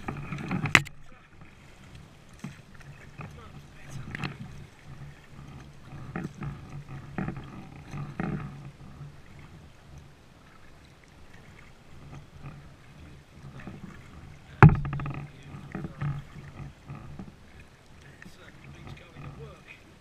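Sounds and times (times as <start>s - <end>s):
kayak paddle strokes in water: 0.0s - 20.0s.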